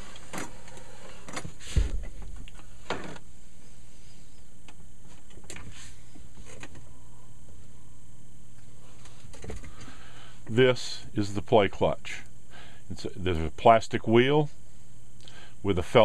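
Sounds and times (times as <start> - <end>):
tape transport humming: 0.0 - 13.6
heavy thump: 1.7 - 2.4.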